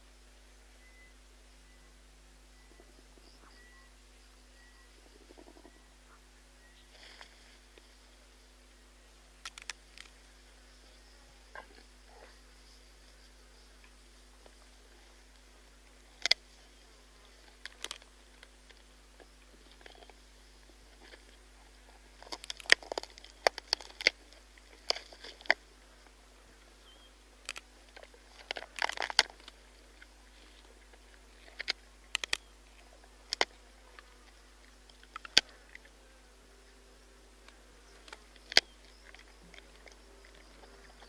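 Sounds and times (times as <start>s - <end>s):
hyena crunching bones: 9.4s - 10.2s, 16.1s - 16.4s, 17.3s - 26.8s, 27.4s - 36.0s, 37.4s - 41.0s.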